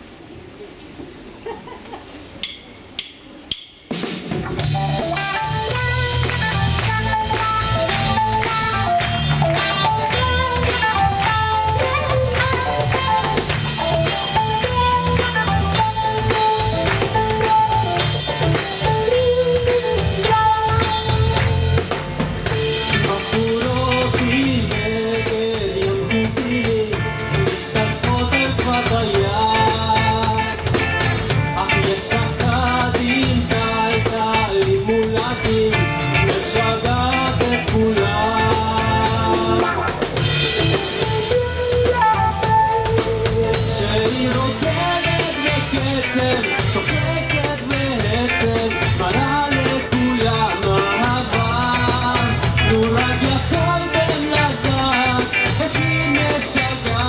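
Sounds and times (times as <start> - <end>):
live band playing upbeat song: 2.2 - 57.0
person singing: 22.8 - 57.0.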